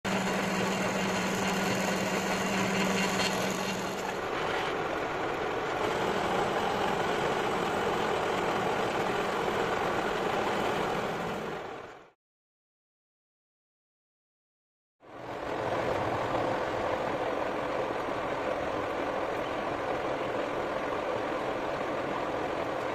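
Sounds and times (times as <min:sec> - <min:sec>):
electric drill humming: 0:00.0 - 0:04.2
lathe tool cutting steel: 0:00.0 - 0:04.8, 0:05.7 - 0:11.7
metal lathe running: 0:00.0 - 0:11.9.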